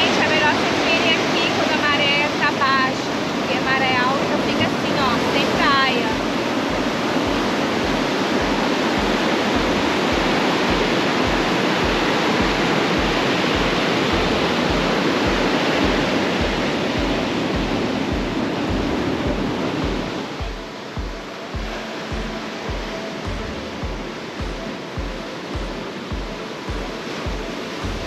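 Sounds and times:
waves breaking on a beach: 0.0s - 28.0s
music bass beat: 6.2s - 28.0s.

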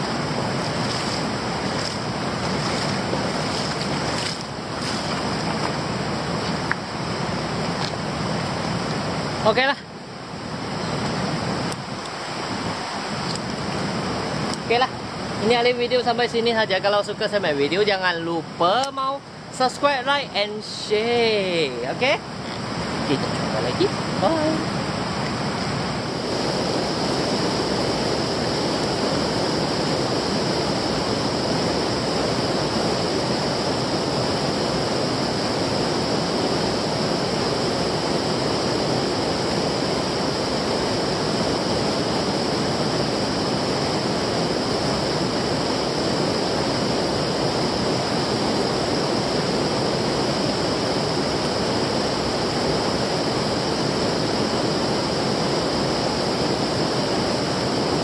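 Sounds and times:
stream water rushing: 0.0s - 58.0s.

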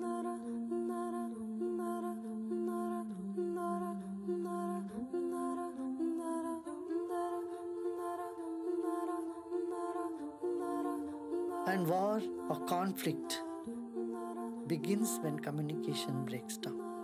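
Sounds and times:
slow melody over low drone: 10.4s - 17.0s.

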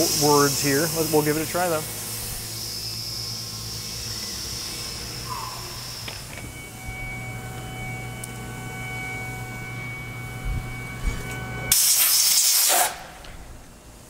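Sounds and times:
compressed air blow gun hissing: 0.0s - 6.0s, 11.7s - 13.0s
electrical hum and whine: 0.0s - 14.0s.

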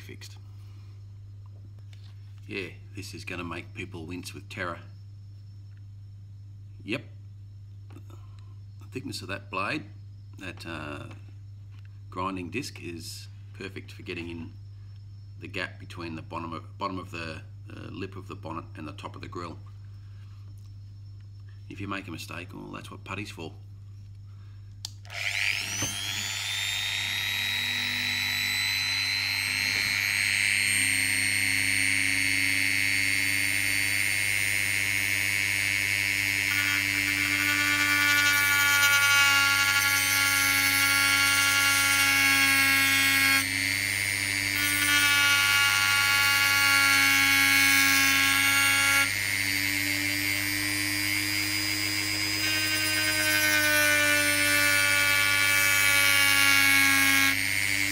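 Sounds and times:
rotary tool grinding metal: 25.0s - 57.9s.

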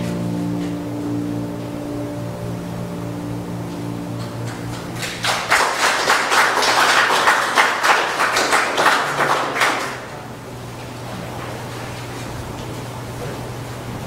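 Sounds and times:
people applauding: 4.2s - 10.4s.

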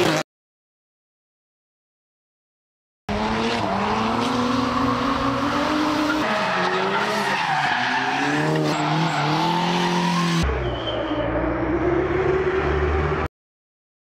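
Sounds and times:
car engine revving: 3.1s - 13.3s.

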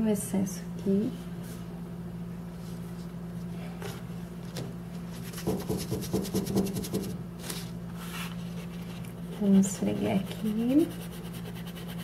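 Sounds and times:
steady low hum: 0.0s - 12.0s
paintbrush scratching on paper: 9.2s - 12.0s.

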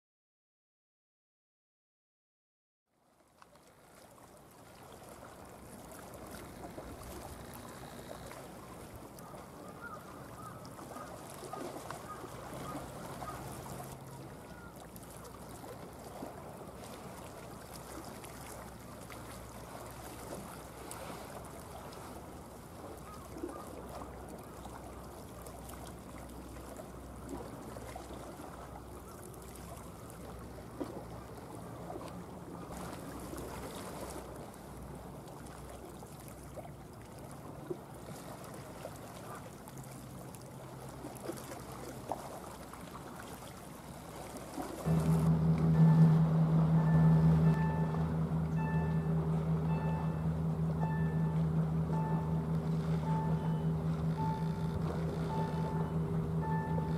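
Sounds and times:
ship engines droning: 5.9s - 35.3s, 44.8s - 56.9s.

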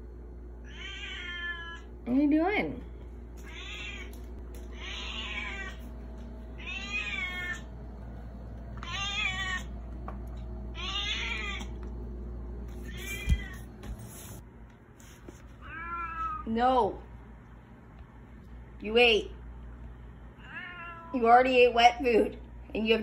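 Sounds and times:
cat meowing: 0.6s - 1.9s, 3.4s - 5.8s, 6.6s - 7.7s, 8.8s - 9.7s, 10.8s - 11.7s, 12.9s - 13.7s, 15.6s - 16.5s, 20.4s - 21.2s.

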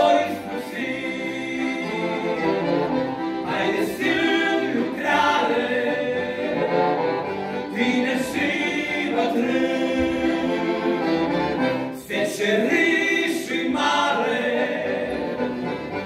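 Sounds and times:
male vocal quartet singing hymn: 0.0s - 2.8s, 3.4s - 11.3s, 11.9s - 15.6s
accordion: 0.0s - 16.0s.

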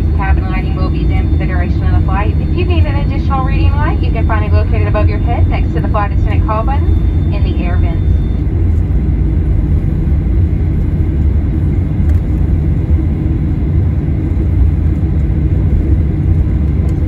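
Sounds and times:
jet engines idling in cabin: 0.0s - 17.0s.

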